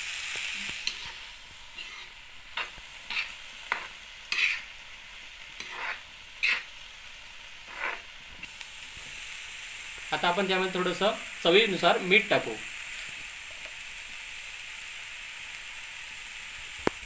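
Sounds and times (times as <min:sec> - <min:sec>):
food sizzling in a pan: 0:00.0 - 0:17.0
spatula scraping a pan: 0:00.6 - 0:04.7, 0:05.5 - 0:06.8, 0:07.6 - 0:08.1.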